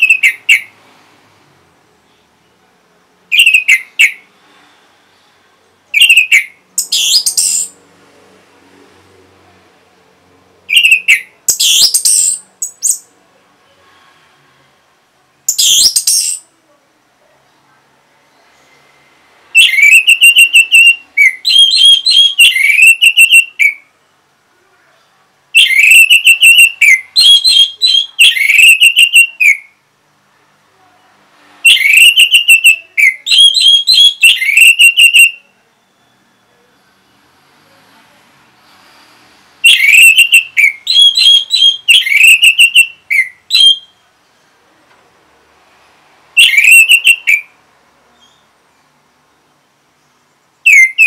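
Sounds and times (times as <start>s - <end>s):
whistled bird song: 0.0s - 0.7s, 3.3s - 4.3s, 5.9s - 7.8s, 10.7s - 13.1s, 15.5s - 16.5s, 19.5s - 23.9s, 25.6s - 29.8s, 31.6s - 37.2s, 39.6s - 44.1s, 46.4s - 47.6s, 48.2s - 48.5s, 50.6s - 51.0s.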